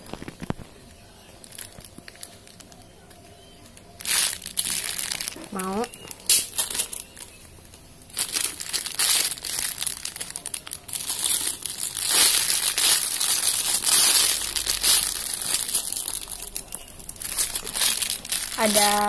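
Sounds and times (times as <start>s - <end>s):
plastic bags crinkling: 0.0s - 19.0s.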